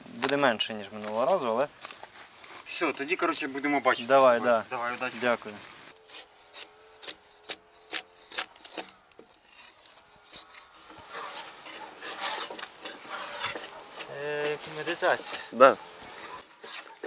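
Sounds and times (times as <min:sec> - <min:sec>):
drawknife scraping bark off log: 0:06.0 - 0:17.0.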